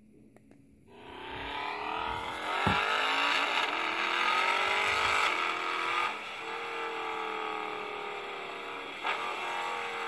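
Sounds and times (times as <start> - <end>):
engine sound from tiny speaker: 0.9 - 10.0.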